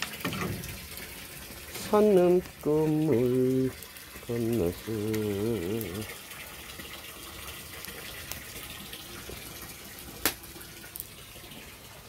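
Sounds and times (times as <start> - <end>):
wood fire hissing and crackling: 0.0 - 12.0
sharp snap of fire: 10.2 - 10.5.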